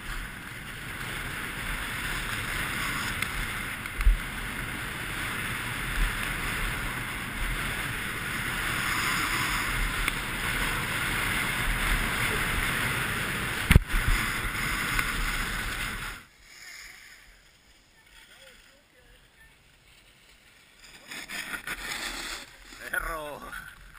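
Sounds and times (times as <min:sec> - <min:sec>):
wind rushing over microphone: 0:00.0 - 0:16.3
skis scraping on snow: 0:00.0 - 0:23.9.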